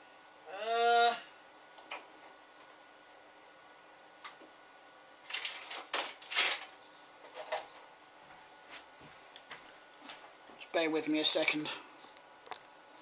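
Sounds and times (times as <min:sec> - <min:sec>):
small objects clattering and rustling: 0:05.2 - 0:07.8.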